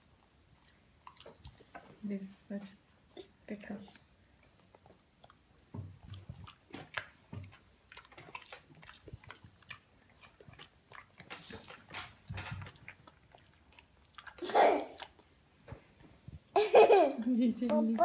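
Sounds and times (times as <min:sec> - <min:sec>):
dog chewing crunchily: 0:00.0 - 0:01.8, 0:04.4 - 0:15.4.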